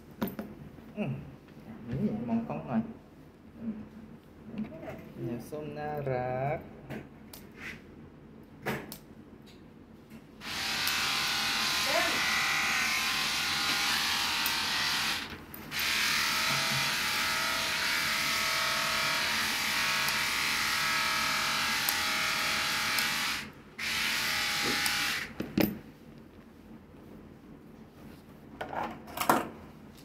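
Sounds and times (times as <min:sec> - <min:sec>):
electric pet trimmer buzzing: 0:10.4 - 0:25.4.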